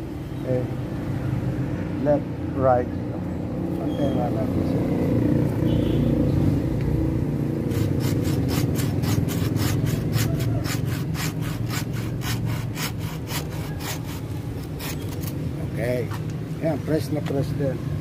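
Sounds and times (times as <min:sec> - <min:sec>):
hand saw cutting wood: 0:07.6 - 0:15.4.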